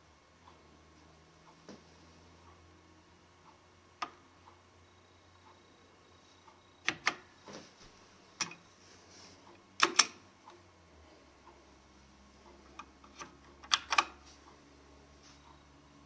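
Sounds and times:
faint steady hum: 0:00.0 - 0:16.0
sharp clicks and taps of parts: 0:09.8 - 0:10.6, 0:12.7 - 0:14.2.

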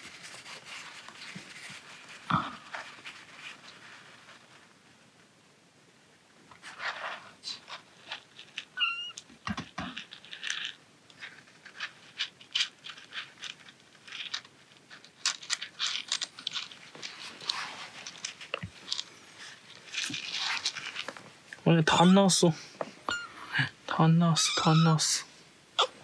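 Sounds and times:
tissue paper rustling: 0:00.0 - 0:04.8, 0:10.3 - 0:21.4
kitten mewing: 0:08.8 - 0:09.2, 0:24.4 - 0:25.0, 0:25.8 - 0:26.0.

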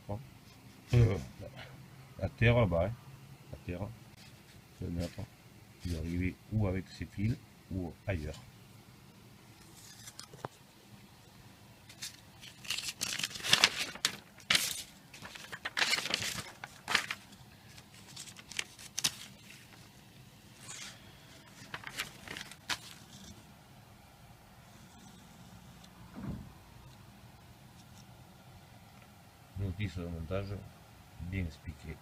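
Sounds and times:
paper rustling and crinkling: 0:11.9 - 0:20.0, 0:20.6 - 0:23.4.

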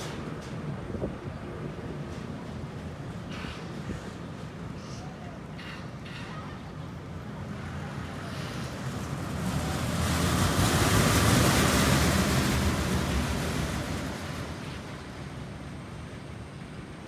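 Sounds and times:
roller coaster rumbling past: 0:05.4 - 0:16.0.

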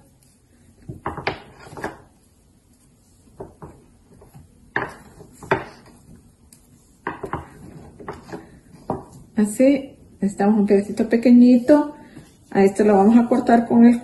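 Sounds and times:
rolling pin knocking on stone board: 0:00.8 - 0:02.1, 0:03.4 - 0:06.0, 0:07.0 - 0:09.2.

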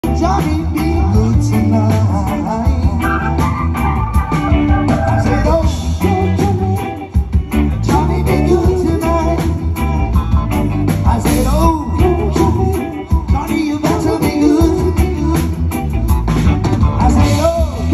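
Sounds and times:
live band music: 0:00.0 - 0:17.9
person singing: 0:00.0 - 0:17.9.

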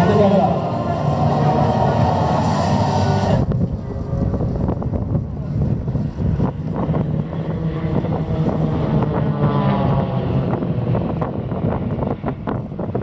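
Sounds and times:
propeller planes droning overhead: 0:00.0 - 0:13.0
wind buffeting microphone: 0:03.2 - 0:13.0.

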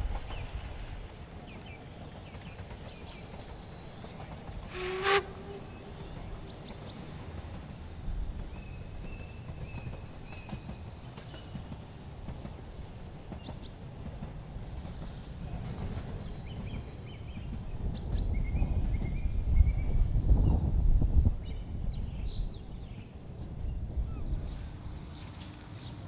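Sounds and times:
distant steam train rumble: 0:00.0 - 0:26.0.

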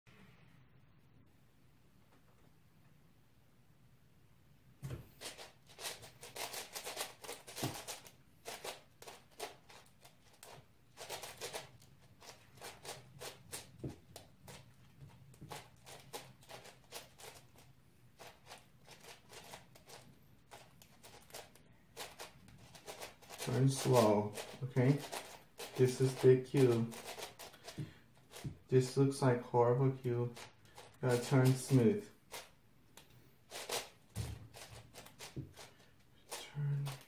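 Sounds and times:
speedcube plastic clicking: 0:05.3 - 0:14.6, 0:15.4 - 0:28.4, 0:30.4 - 0:33.9.

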